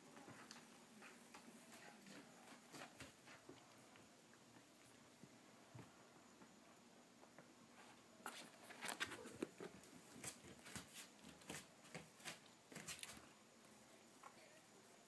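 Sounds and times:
kittens' paws scampering on mat: 0.2s - 5.9s, 7.8s - 13.3s.

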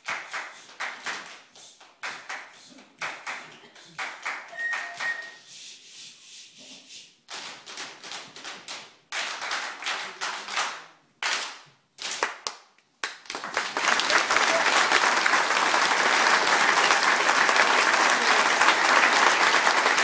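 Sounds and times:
hands clapping: 0.0s - 5.4s, 7.3s - 20.0s
audience applause: 13.0s - 20.0s.

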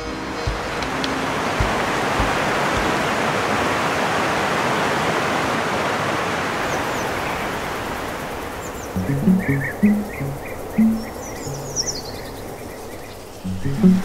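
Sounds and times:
waterfall rushing: 0.0s - 14.0s
faint bird chirps: 6.6s - 14.0s.

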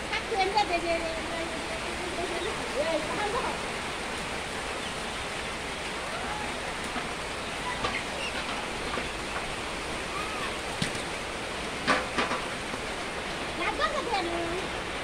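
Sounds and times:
steady hiss of shed noise: 0.0s - 15.0s
faint chicken chirp: 7.4s - 9.4s.

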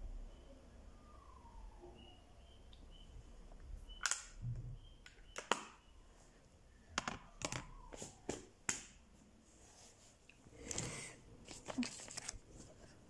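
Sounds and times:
plastic cases clicking and tapping: 7.0s - 7.7s.

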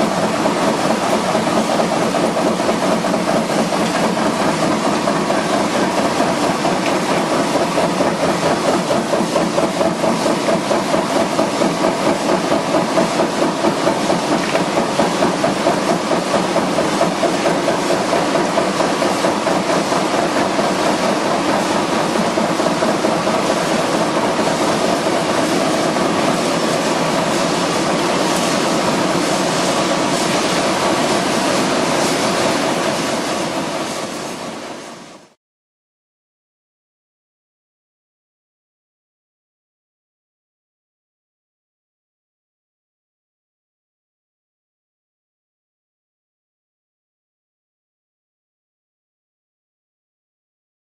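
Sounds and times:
machinery with rhythmic pulse: 0.0s - 35.4s.

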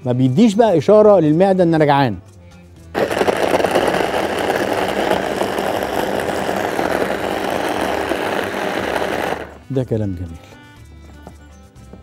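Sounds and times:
electric hand blender running: 3.0s - 9.7s.

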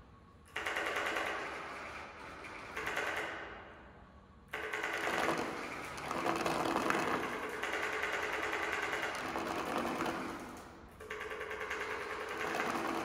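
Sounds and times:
paper membranes rattling buzz: 4.6s - 10.7s.

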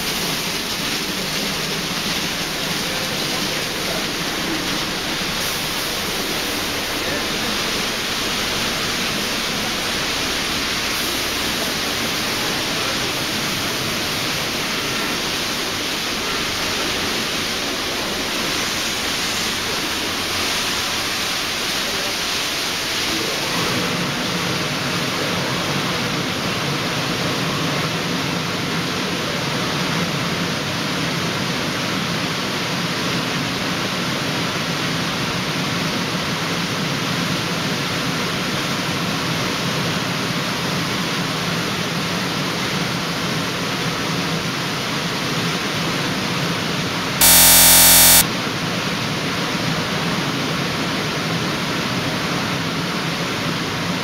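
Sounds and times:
car wash water spraying: 0.0s - 22.9s.

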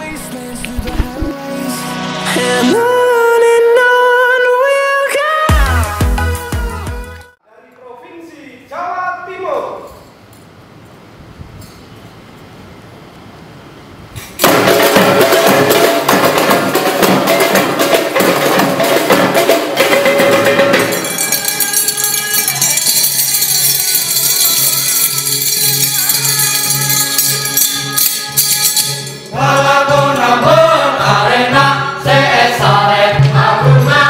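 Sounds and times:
frame drums and barrel drums: 14.4s - 29.0s
ringing triangles: 20.7s - 29.4s.

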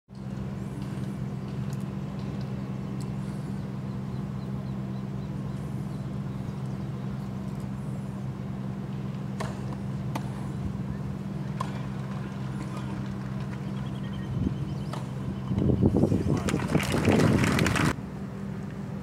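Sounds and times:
low machinery hum: 0.1s - 19.0s
tennis ball bouncing on clay: 11.5s - 13.7s.

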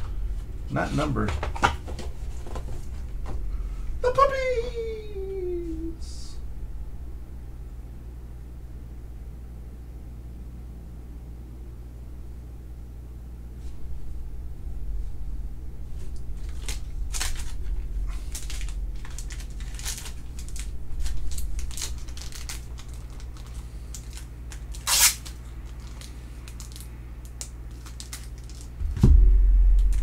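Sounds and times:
plastic card sleeves crinkling: 16.0s - 28.8s.

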